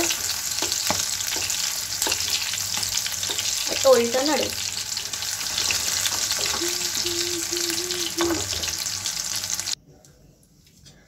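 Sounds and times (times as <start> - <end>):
wooden spatula scraping pan: 0.0 - 3.7, 4.6 - 7.0
food deep-frying in oil: 0.0 - 9.8.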